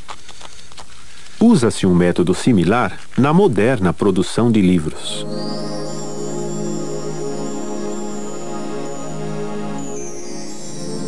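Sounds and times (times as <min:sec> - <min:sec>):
held keyboard chords: 0:05.1 - 0:11.0.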